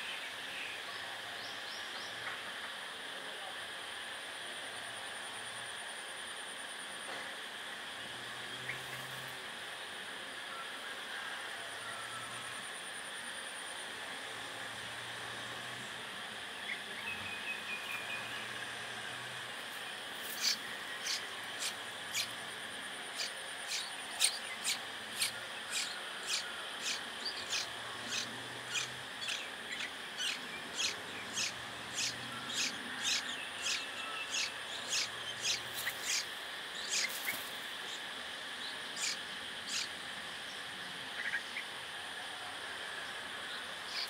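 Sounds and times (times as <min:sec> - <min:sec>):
nestlings cheeping: 0:20.2 - 0:22.4, 0:23.1 - 0:38.0, 0:39.0 - 0:39.9.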